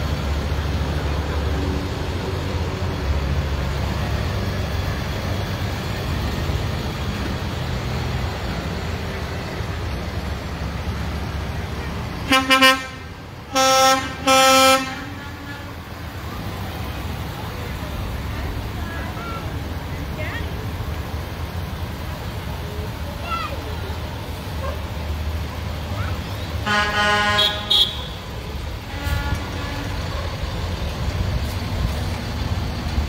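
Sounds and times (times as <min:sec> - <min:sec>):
truck engines passing: 0:00.0 - 0:33.0
truck horn toots and blasts: 0:12.2 - 0:15.8, 0:26.6 - 0:30.2.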